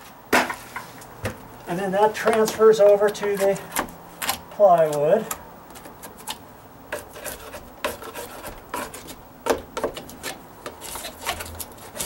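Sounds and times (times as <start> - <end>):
hand tool scraping wood: 2.1 - 5.0, 6.0 - 12.0.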